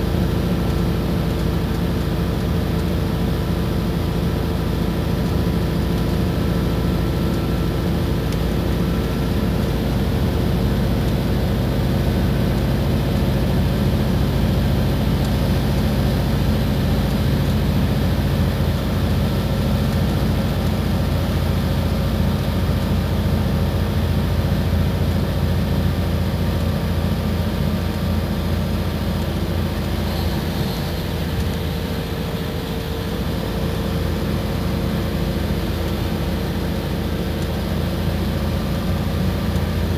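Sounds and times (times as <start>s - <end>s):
bus engine humming: 0.0s - 39.9s
road noise: 23.8s - 39.9s.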